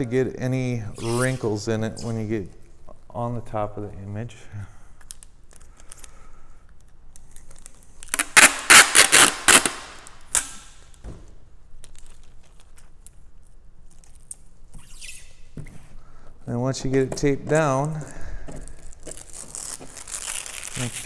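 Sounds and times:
packing tape ripping: 7.1s - 11.0s, 18.7s - 21.0s.

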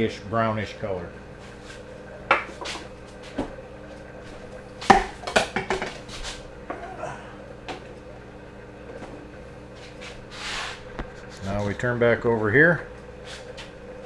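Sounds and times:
faint steady hum: 0.0s - 14.0s
kitchenware clattering at a sink: 4.9s - 6.0s.

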